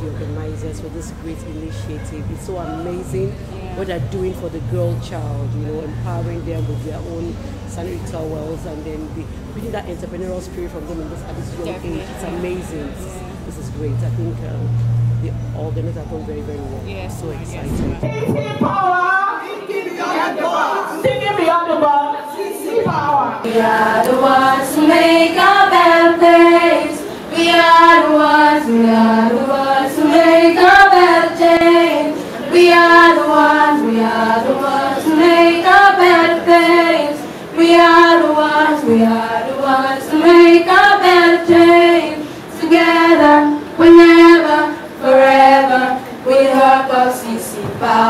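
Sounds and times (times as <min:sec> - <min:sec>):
girls singing together: 0:18.2 - 0:48.0.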